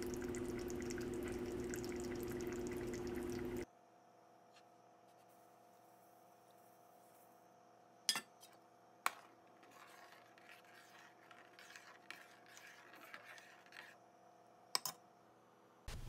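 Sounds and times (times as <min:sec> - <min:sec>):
spoon stirring pudding: 0:09.1 - 0:14.0.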